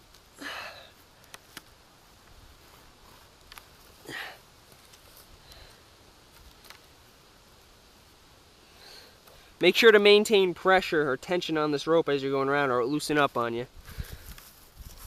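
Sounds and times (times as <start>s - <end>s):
rope handling clicks: 1.2s - 1.8s.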